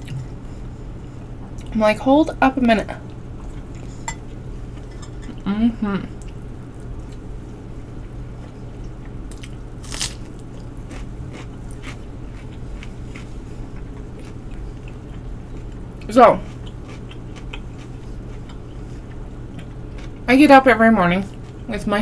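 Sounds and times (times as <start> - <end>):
person chewing food: 3.1 - 5.4, 8.0 - 20.2.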